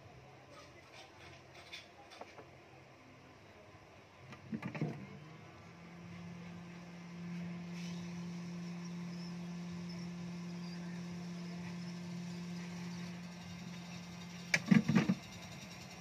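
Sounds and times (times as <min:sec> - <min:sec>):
hot air gun blower humming: 0:05.4 - 0:16.0.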